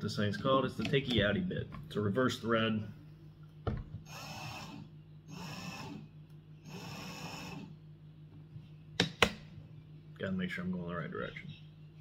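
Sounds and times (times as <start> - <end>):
cordless drill running slowly: 4.1 - 6.0, 6.6 - 7.7.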